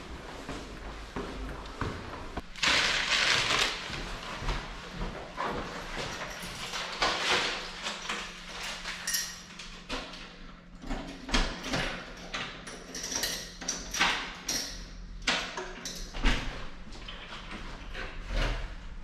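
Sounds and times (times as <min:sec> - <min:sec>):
keys rattling in door lock: 0:05.9 - 0:09.8, 0:11.6 - 0:14.9.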